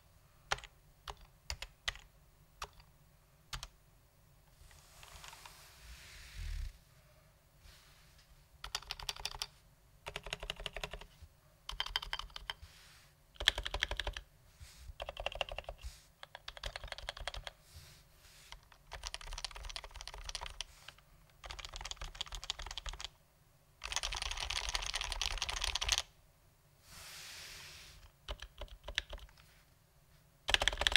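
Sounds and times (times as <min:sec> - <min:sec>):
keyboard typing: 0:00.5 - 0:02.9, 0:03.5 - 0:03.7, 0:08.6 - 0:11.1, 0:11.7 - 0:12.6, 0:13.4 - 0:14.2, 0:15.0 - 0:17.6, 0:18.6 - 0:23.2, 0:23.8 - 0:26.1, 0:28.2 - 0:29.4, 0:30.5 - 0:30.9.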